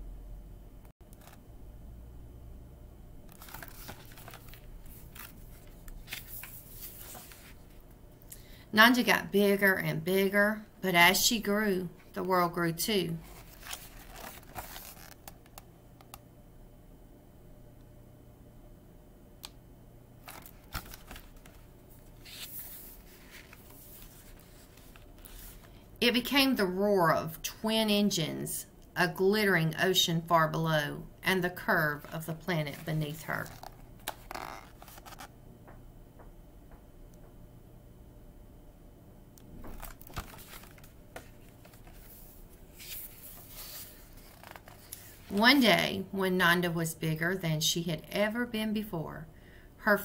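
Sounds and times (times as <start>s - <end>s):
book pages rustling: 1.2s - 1.4s, 3.3s - 7.8s, 13.2s - 15.6s, 20.2s - 25.8s, 32.0s - 35.3s, 39.6s - 45.4s.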